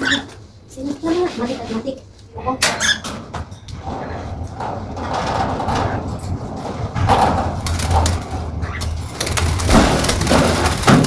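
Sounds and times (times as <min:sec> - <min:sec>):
scraping and rattling bird cage: 0:01.0 - 0:11.0
low hum: 0:02.2 - 0:11.0.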